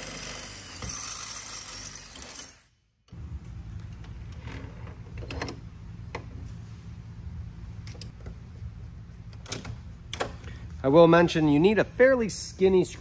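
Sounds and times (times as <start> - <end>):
steady low hum: 2.9 - 13.0.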